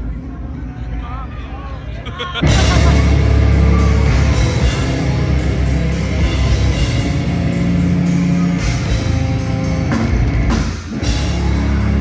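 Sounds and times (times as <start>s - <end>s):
live heavy metal band: 2.4s - 12.0s.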